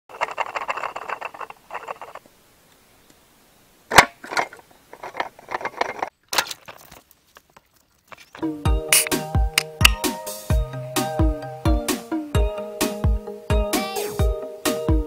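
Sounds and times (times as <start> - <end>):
sharp snap: 8.9 - 10.1.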